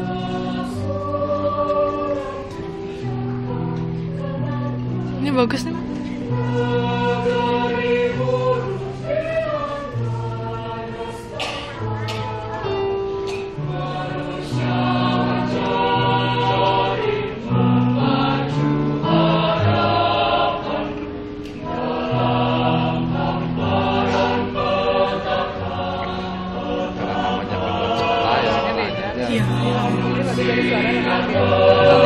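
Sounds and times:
mixed choir singing: 0.0 - 32.0.

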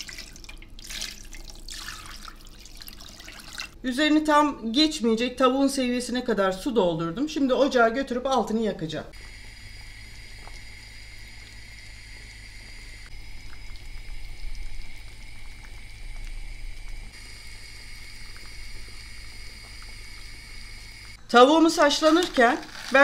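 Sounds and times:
water bubbling in a pot: 0.0 - 3.8, 9.1 - 21.2
steady high hum: 3.8 - 23.0.

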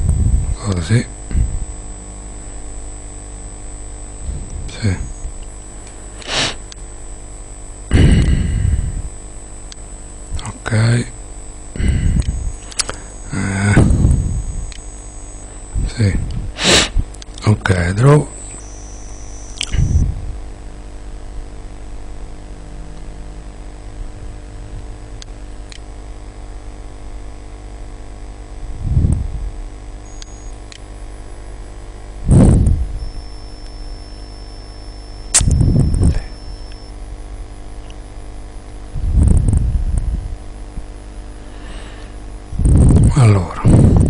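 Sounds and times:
electrical hum with fan noise: 0.0 - 44.0
puffs on microphone: 6.0 - 6.7, 15.8 - 17.1.

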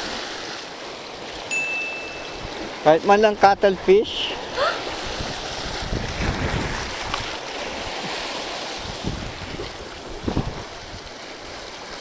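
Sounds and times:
sea waves breaking over rocks: 0.0 - 12.0
wind buffeting microphone: 3.4 - 11.7.

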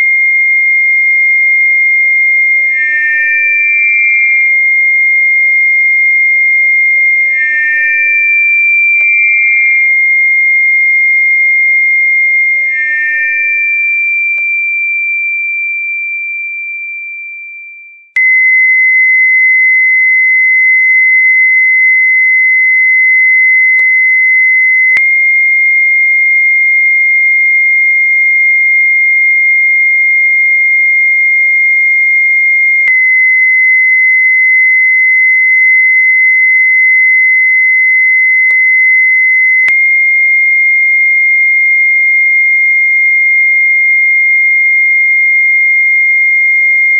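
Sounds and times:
high-pitched electronic tone: 0.0 - 14.8.

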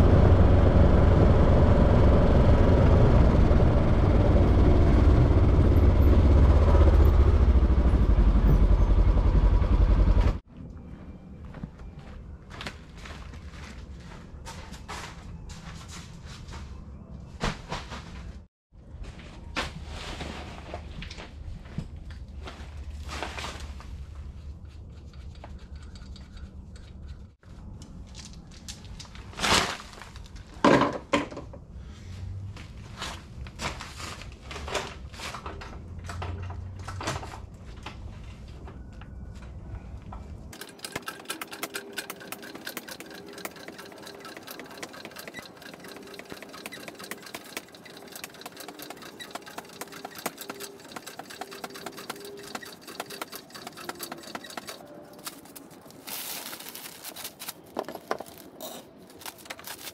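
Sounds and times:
small machine ticking: 40.6 - 54.8.

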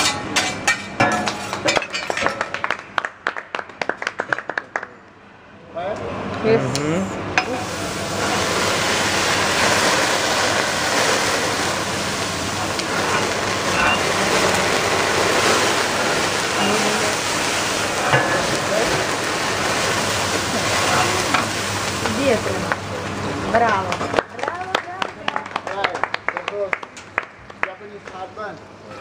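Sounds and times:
rice sizzling on a griddle: 7.4 - 24.7.

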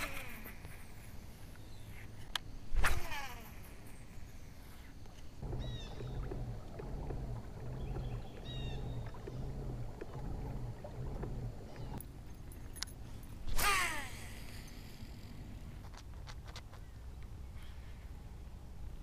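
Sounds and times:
kayak paddle strokes: 5.1 - 12.0.

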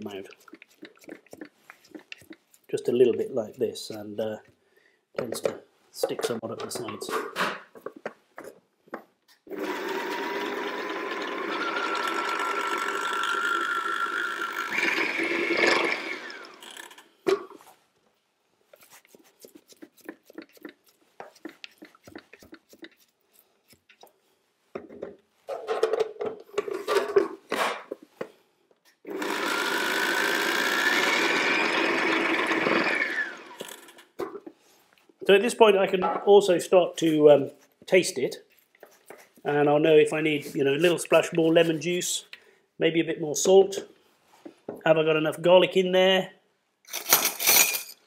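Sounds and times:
spatula scraping plastic bowl: 0.2 - 4.0, 18.8 - 24.2
food processor blending: 9.5 - 17.1, 29.1 - 34.0.

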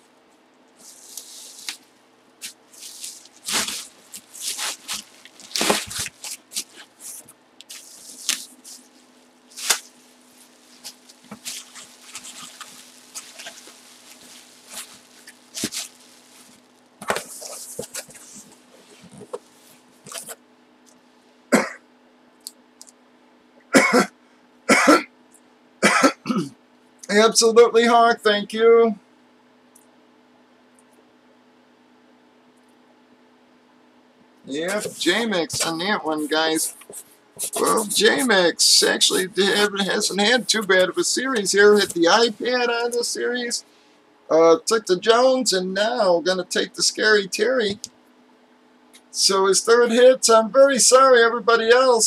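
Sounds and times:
faint steady hum: 0.0 - 52.0
bubble wrap crinkling: 0.8 - 20.4, 34.7 - 43.0.

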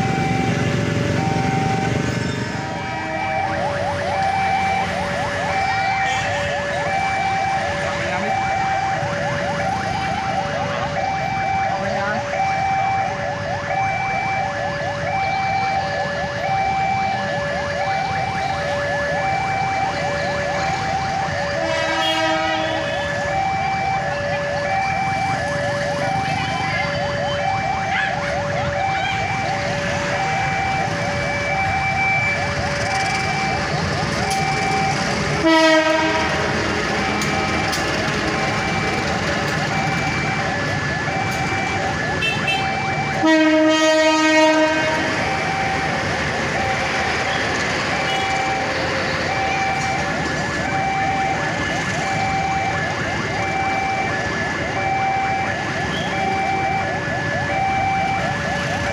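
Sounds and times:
street traffic: 0.0 - 58.9
two-tone crossing warning alarm: 0.0 - 58.9
locomotive horn blasting: 21.5 - 23.1, 35.4 - 36.6, 42.2 - 45.3, 48.0 - 48.5
train coaches rolling: 32.5 - 42.0, 42.8 - 54.7.

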